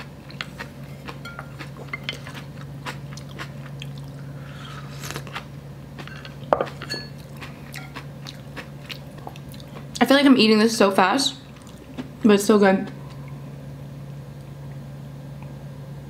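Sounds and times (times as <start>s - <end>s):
chewing and mouth clicks: 0.2s - 4.2s, 5.0s - 10.0s, 11.5s - 12.1s.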